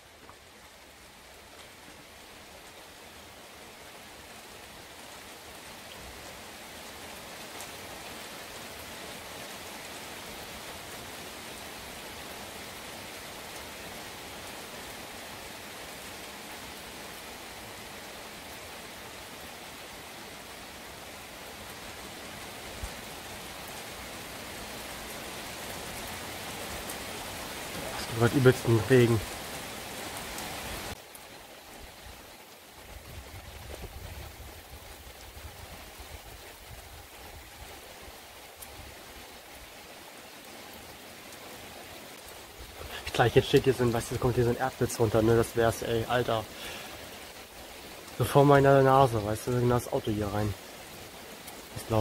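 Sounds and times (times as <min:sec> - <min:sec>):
heavy rain falling: 0:00.0 - 0:52.0.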